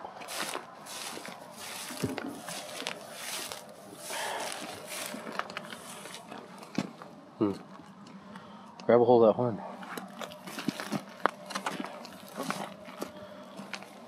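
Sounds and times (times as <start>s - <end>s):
footsteps in brush: 0.0s - 7.1s, 10.0s - 14.0s.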